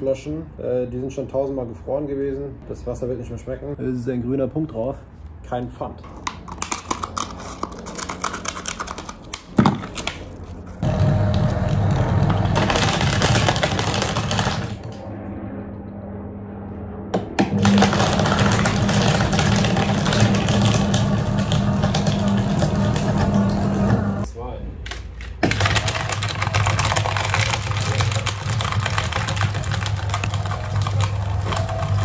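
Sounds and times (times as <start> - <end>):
cutters crunching plastic: 6.5 - 14.9, 17.5 - 23.5, 24.9 - 32.0
electric motor humming: 17.4 - 24.2
plastic bottles crinkling: 25.1 - 32.0.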